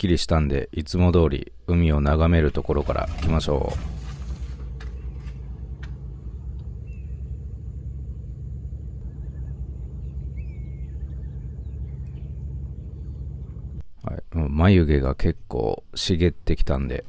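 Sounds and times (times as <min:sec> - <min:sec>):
steady low rumble: 0:00.3 - 0:17.0
faint bird chirps: 0:06.2 - 0:13.6.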